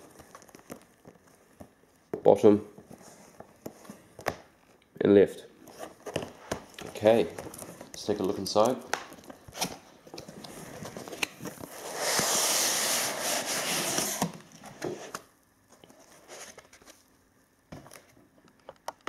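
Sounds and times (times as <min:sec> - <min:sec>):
cardboard scraping on cardboard: 0:11.7 - 0:15.2.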